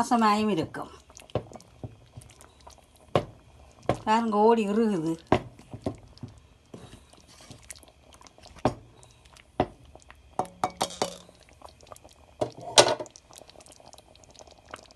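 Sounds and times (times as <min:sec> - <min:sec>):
spatula scraping a pan: 0:06.7 - 0:07.8.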